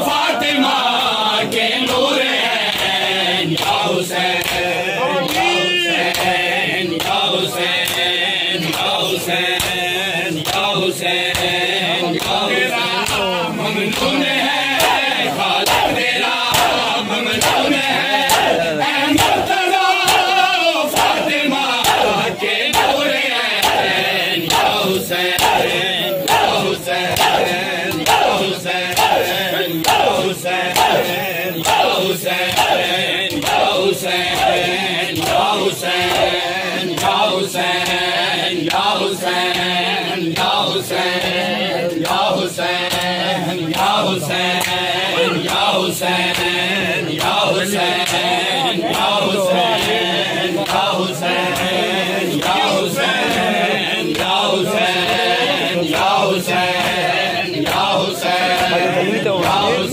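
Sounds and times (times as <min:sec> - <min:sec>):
men chanting in unison: 0:00.0 - 0:59.9
hands slapping chests: 0:02.7 - 0:09.0, 0:09.6 - 0:13.3, 0:13.9 - 0:18.6, 0:19.2 - 0:39.7, 0:42.8 - 0:48.3.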